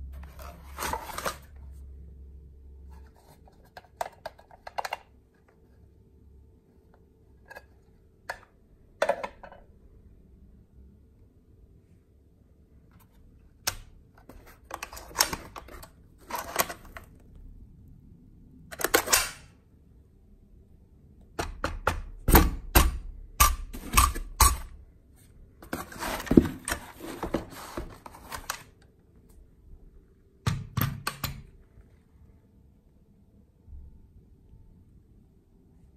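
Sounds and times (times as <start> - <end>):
rustling and scraping: 0.0 - 1.9, 2.8 - 5.9, 25.1 - 28.8.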